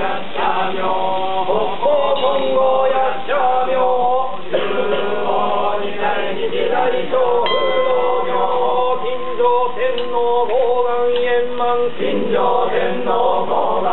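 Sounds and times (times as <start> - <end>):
men chanting together: 0.0 - 13.9
high ringing tone: 7.4 - 10.0.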